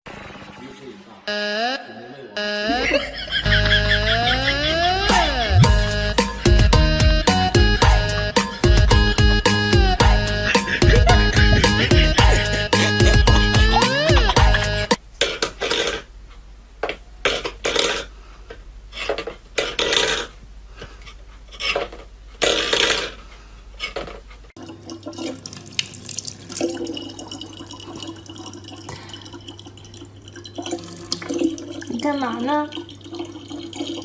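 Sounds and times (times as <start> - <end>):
low hum: 2.4 - 14.9
tap water running into plastic bottle: 24.6 - 34.0.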